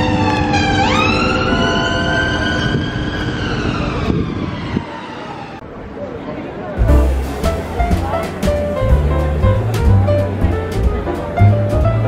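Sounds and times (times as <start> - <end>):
emergency vehicle siren wailing: 0.0 - 5.8
traffic noise: 0.0 - 12.0.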